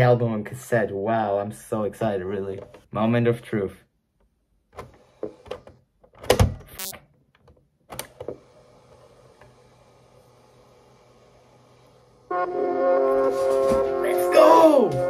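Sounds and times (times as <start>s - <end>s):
short scrape: 13.1s - 14.0s.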